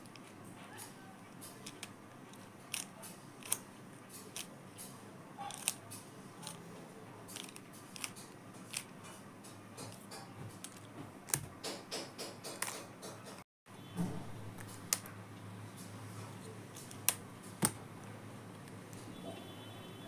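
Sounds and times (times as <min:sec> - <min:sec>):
plastic puzzle cube clicking: 0:01.5 - 0:01.9, 0:02.7 - 0:03.6, 0:04.2 - 0:04.5, 0:05.5 - 0:05.8, 0:07.3 - 0:08.9.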